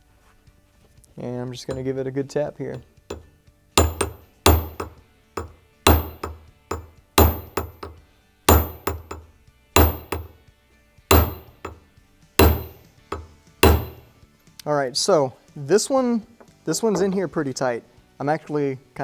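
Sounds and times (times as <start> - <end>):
hammer striking metal punch: 1.7 - 1.9, 2.7 - 10.4, 11.1 - 11.8, 12.4 - 14.1.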